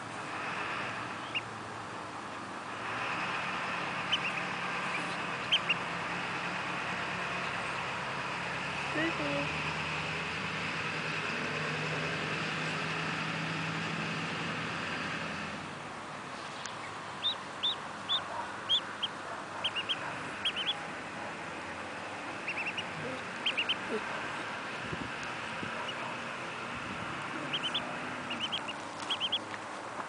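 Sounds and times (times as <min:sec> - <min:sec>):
duckling peeping: 0:01.1 - 0:01.5, 0:03.3 - 0:09.2, 0:16.4 - 0:29.6.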